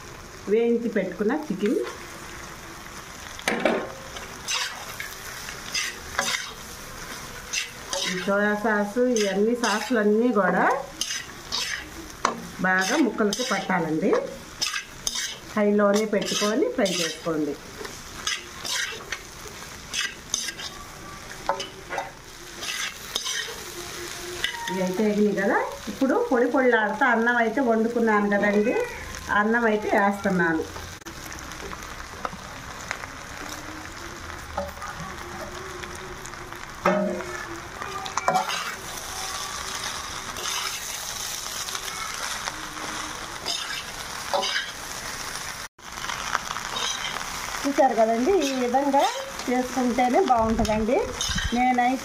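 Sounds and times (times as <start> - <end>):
food sizzling: 0.0 - 52.0
metal spatula scraping pan: 4.2 - 19.2, 19.9 - 20.8, 21.4 - 25.2, 38.1 - 44.8, 46.7 - 47.2, 48.3 - 49.5, 50.6 - 51.6.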